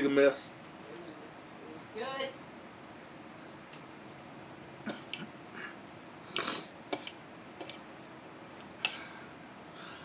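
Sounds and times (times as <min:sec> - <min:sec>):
fork scraping a plate: 0:06.4 - 0:07.8.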